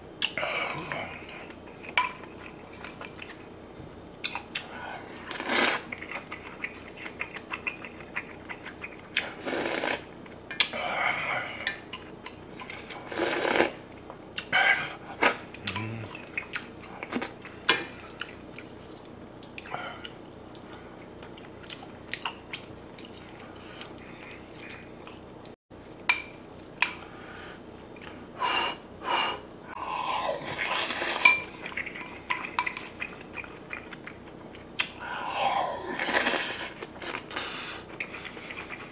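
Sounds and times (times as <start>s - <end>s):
eating and chewing: 0.2s - 3.6s, 4.2s - 38.9s.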